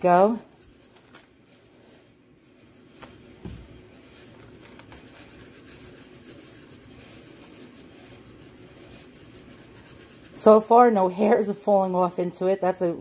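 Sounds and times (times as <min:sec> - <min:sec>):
paintbrush scrubbing wood: 0:03.7 - 0:12.1.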